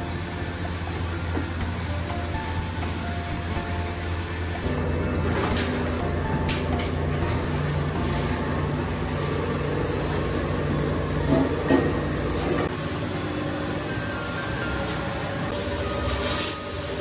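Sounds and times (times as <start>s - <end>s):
low steady hum: 0.0s - 12.7s.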